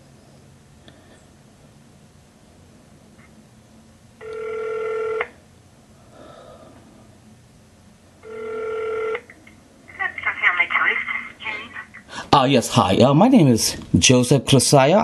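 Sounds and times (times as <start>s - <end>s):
telephone ringback tone: 4.2s - 5.4s, 8.2s - 9.2s.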